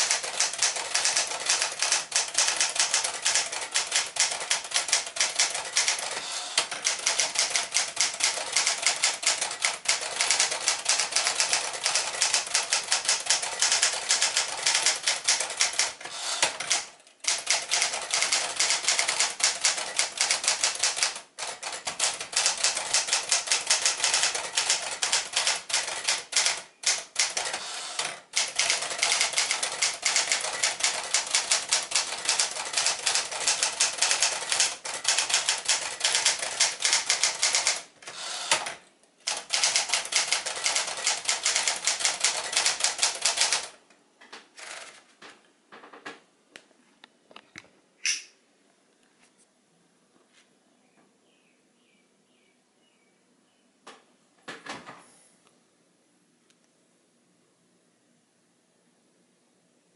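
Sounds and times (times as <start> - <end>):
manual typewriter typing: 0.0 - 43.8, 44.6 - 45.0.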